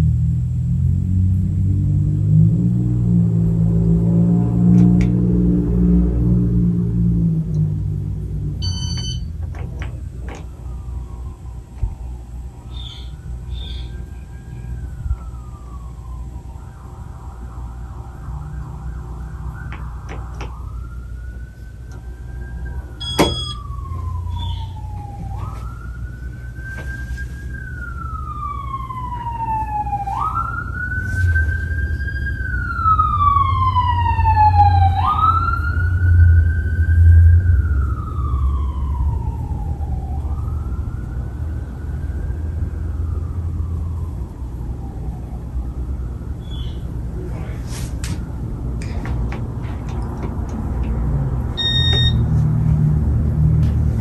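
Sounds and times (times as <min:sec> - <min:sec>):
emergency vehicle siren wailing: 0:01.4 - 0:47.4, 0:48.1 - 0:54.0
ceiling fan humming: 0:02.7 - 0:35.9.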